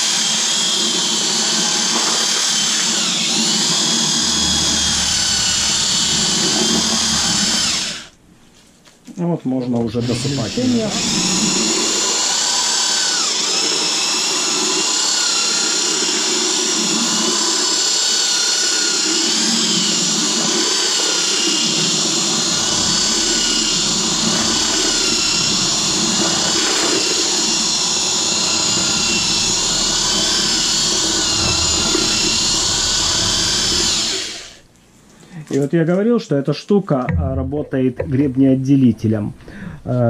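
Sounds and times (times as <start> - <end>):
electric drill mixer whining: 0.0 - 8.2, 9.9 - 34.7.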